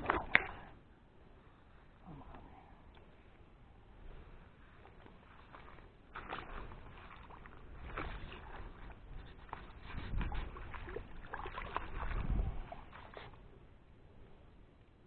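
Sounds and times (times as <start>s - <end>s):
water sloshing and splashing: 0.0s - 0.8s, 4.6s - 13.7s.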